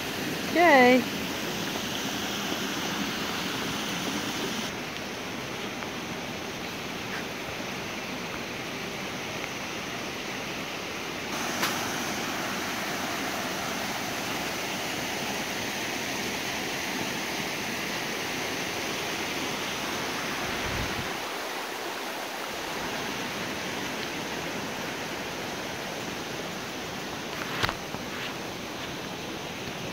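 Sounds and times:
waterfall rushing: 0:00.0 - 0:05.6, 0:11.3 - 0:27.2.

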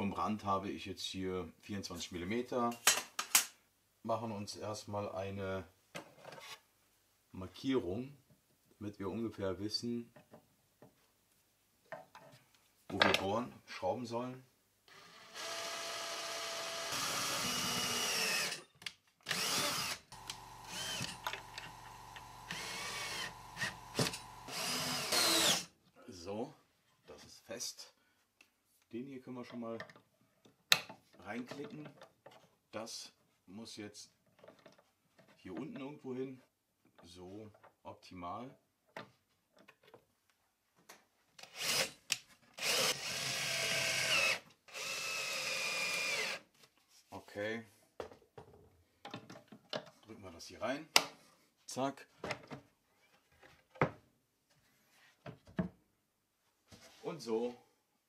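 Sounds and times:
cordless drill running into wood: 0:14.9 - 0:18.6, 0:19.2 - 0:25.7, 0:41.5 - 0:42.0, 0:42.6 - 0:46.4.

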